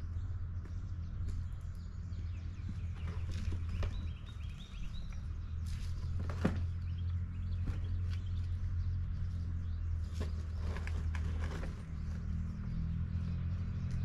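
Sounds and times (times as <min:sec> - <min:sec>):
birds chirping: 0:00.0 - 0:14.0
steady low hum: 0:00.0 - 0:14.0
rocks knocking in a cart: 0:02.6 - 0:05.2, 0:05.9 - 0:08.6.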